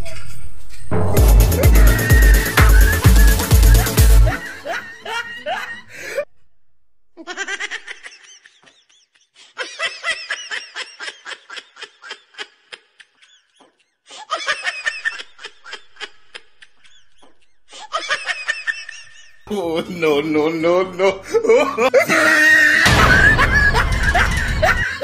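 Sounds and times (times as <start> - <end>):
rapid pulsing laughter: 1.2 - 6.2, 21.2 - 25.0.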